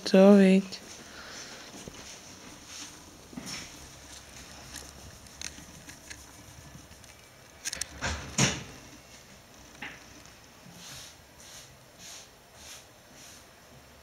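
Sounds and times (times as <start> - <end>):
bedding fabric rustling: 0.8 - 7.4
rustling thump: 7.7 - 10.1.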